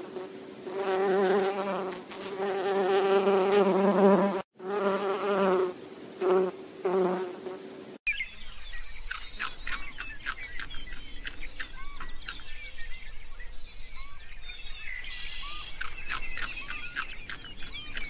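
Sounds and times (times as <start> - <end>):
honeybees buzzing: 0.0 - 8.0
small birds chirping: 5.4 - 18.0.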